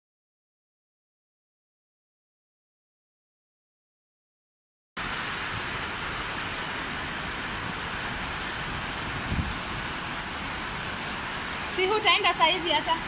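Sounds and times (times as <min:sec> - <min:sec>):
heavy rain on paving: 0:05.0 - 0:13.0.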